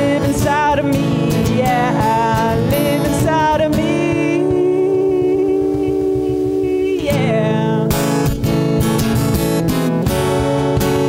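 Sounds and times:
woman singing: 0:00.0 - 0:08.8
cajon drum: 0:00.0 - 0:11.0
strummed acoustic guitar: 0:00.0 - 0:11.0.

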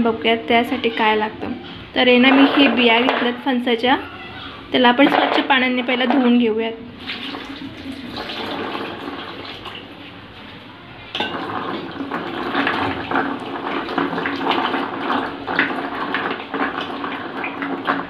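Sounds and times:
water pouring into a basin: 0:06.9 - 0:18.0.

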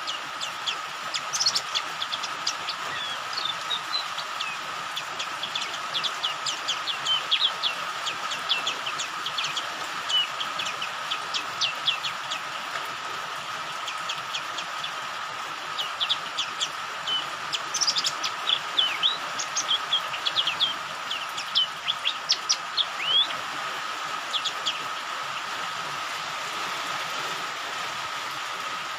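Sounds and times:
bird chirping rapidly: 0:00.0 - 0:12.5, 0:15.7 - 0:23.4, 0:24.3 - 0:25.0
rain hissing: 0:00.0 - 0:28.9.

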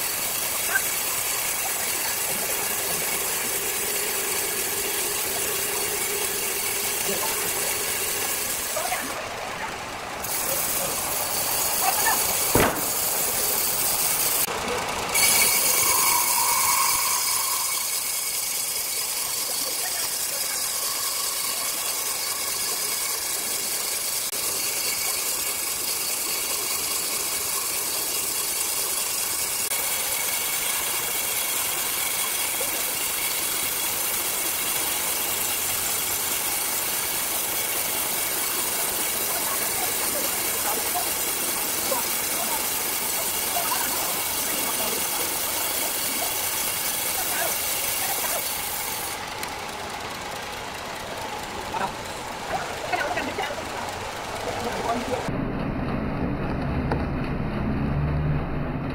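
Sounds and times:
circular saw whirring: 0:00.0 - 0:56.0
sharp knock: 0:12.5 - 0:12.9.

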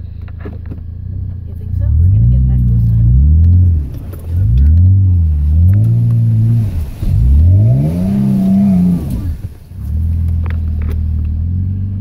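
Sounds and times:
truck engine revving hard: 0:01.7 - 0:10.6.

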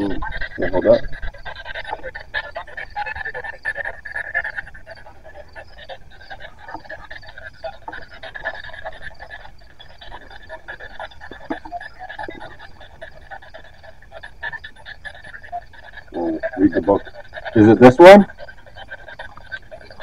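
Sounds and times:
radio static and broadcast fragments: 0:00.0 - 0:03.4, 0:15.4 - 0:20.0.

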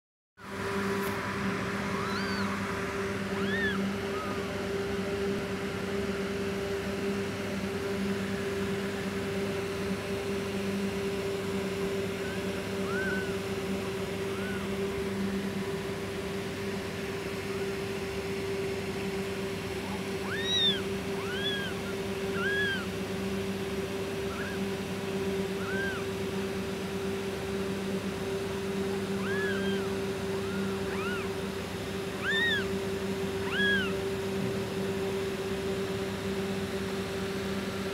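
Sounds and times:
low hum: 0:00.5 - 0:37.1
kittens mewing: 0:01.8 - 0:04.6, 0:11.8 - 0:15.5, 0:17.2 - 0:17.9, 0:19.0 - 0:26.2, 0:28.3 - 0:34.9.

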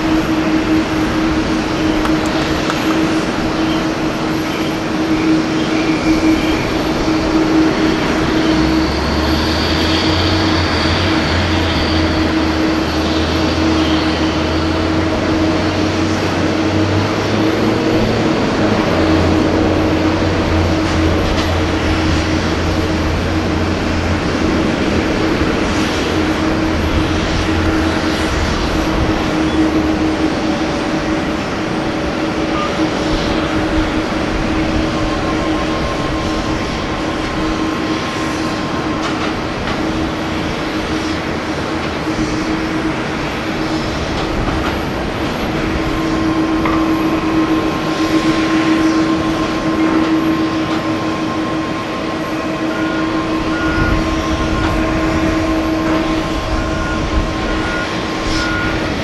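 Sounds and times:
deep drone: 0:00.0 - 0:59.0
jet engines rumbling: 0:00.0 - 0:59.0.

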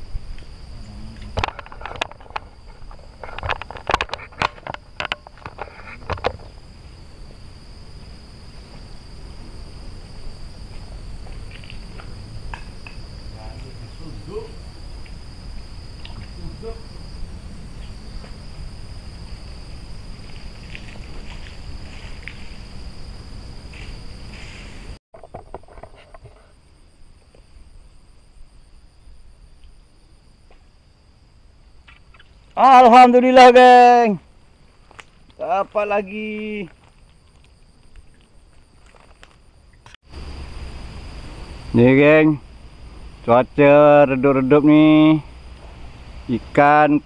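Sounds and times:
insects trilling: 0:00.0 - 0:47.0.

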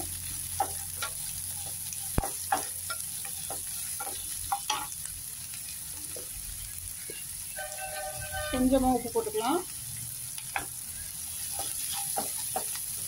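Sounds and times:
onions sizzling in hot oil: 0:00.0 - 0:13.0
wooden spatula scraping a pan: 0:07.0 - 0:09.0, 0:11.3 - 0:12.8.

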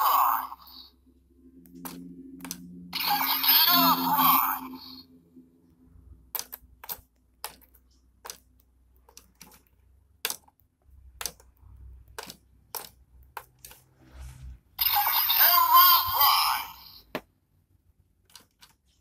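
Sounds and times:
plastic toy clicks: 0:06.3 - 0:11.5.

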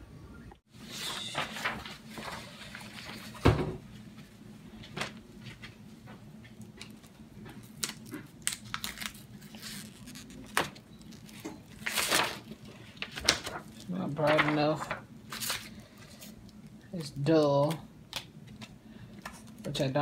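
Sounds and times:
paper rustling and tapping: 0:13.0 - 0:15.6.

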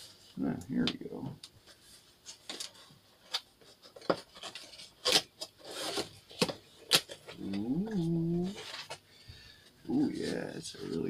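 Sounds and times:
person humming: 0:07.4 - 0:08.6.

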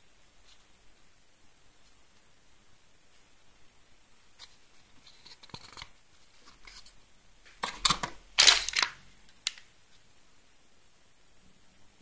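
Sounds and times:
plastic bag crinkling: 0:08.4 - 0:09.6.

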